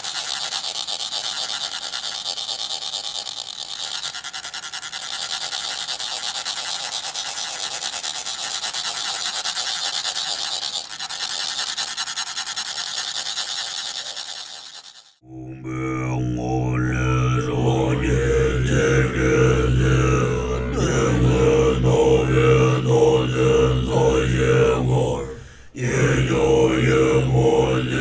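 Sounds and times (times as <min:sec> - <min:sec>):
voices chanting: 0:15.2 - 0:28.0.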